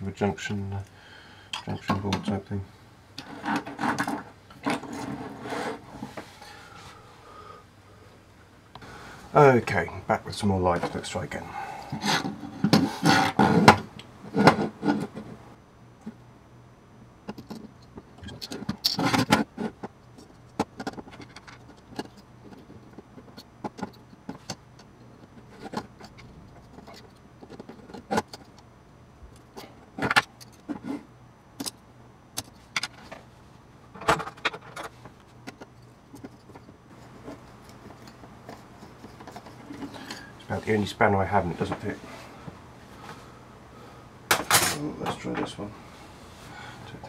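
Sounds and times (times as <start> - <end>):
metal parts clinking and rattling: 20.4 - 24.6.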